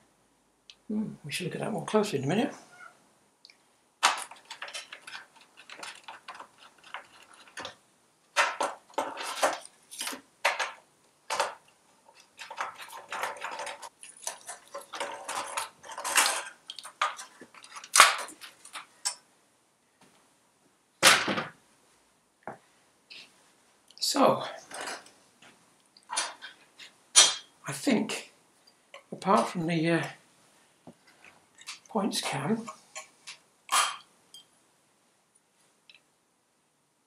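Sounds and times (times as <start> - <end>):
metallic clanks and scrapes: 8.4 - 19.2, 24.6 - 25.1, 26.1 - 27.5, 32.6 - 34.4.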